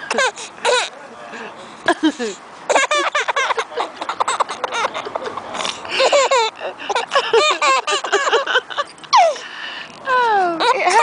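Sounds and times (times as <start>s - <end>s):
baby giggling: 0.1s - 0.9s, 1.9s - 9.4s, 10.6s - 11.0s.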